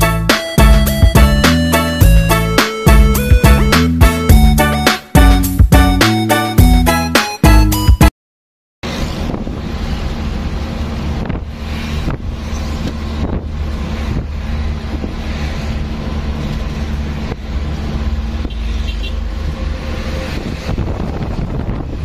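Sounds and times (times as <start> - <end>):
low road rumble: 0.0 - 7.9, 8.8 - 22.0
vehicle engine hum: 8.8 - 22.0
wind buffeting microphone: 8.9 - 18.4, 20.0 - 22.0.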